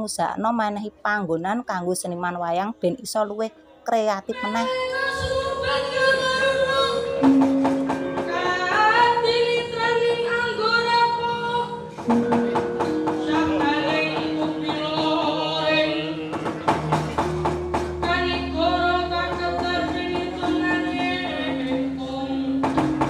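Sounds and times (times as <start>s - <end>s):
gamelan ringing metal tones: 6.4s - 23.0s
person singing: 13.1s - 16.2s, 18.0s - 23.0s.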